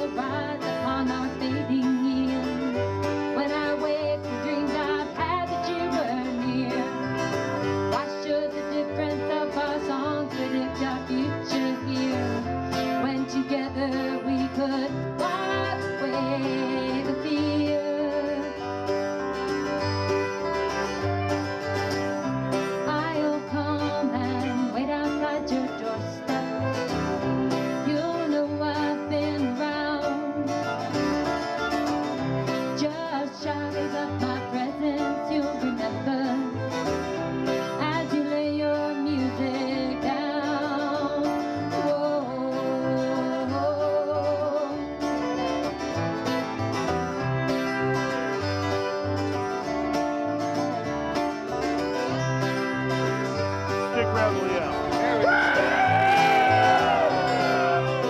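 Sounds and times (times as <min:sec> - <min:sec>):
banjo: 0:00.0 - 0:58.0
bluegrass music: 0:00.0 - 0:58.0
picked guitar: 0:00.0 - 0:58.0
bass line: 0:51.7 - 0:58.0.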